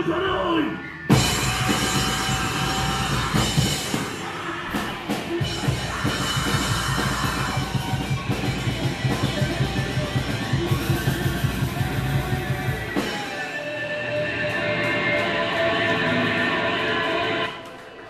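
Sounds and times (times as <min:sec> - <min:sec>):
live rock band playing: 0:00.8 - 0:17.5.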